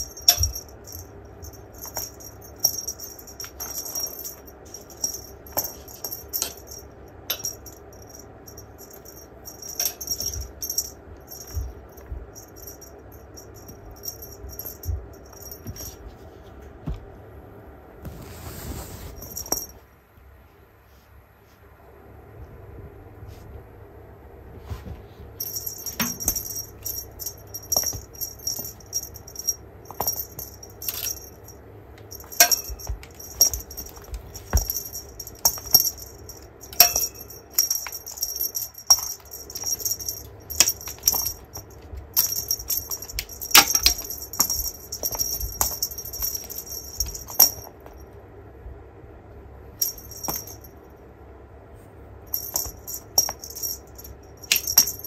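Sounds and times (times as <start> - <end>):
small bell jingling: 0.0 - 16.2, 19.2 - 19.8, 25.4 - 48.1, 49.8 - 50.9, 52.3 - 55.0.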